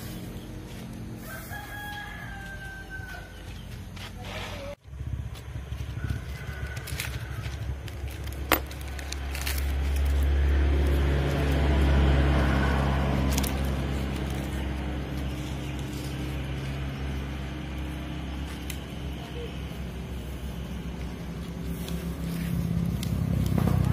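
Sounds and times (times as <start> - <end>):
engine running: 0.0 - 23.9.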